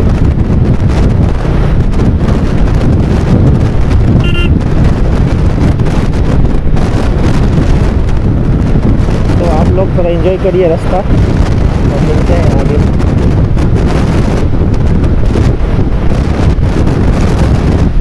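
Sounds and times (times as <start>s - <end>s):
wind rumble on microphone: 0.0s - 18.0s
brief high beep: 4.2s - 4.5s.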